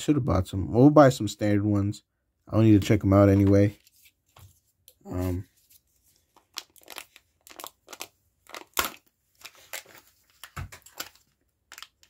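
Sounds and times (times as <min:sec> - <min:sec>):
foil and plastic packaging crinkling: 0:05.1 - 0:12.0
sharp packaging snap: 0:08.6 - 0:09.1.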